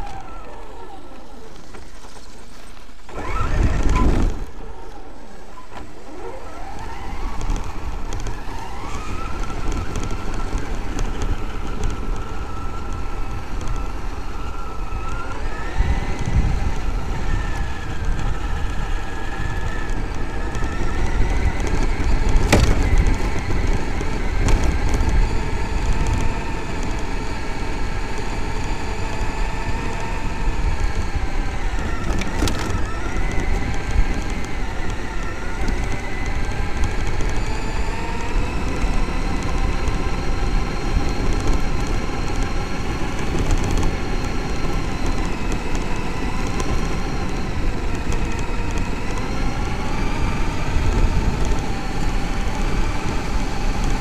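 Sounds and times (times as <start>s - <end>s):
electric motor and drivetrain whining: 0.0s - 54.0s
tyres rumbling on rough ground: 0.0s - 54.0s
sharp knocks: 22.4s - 23.2s.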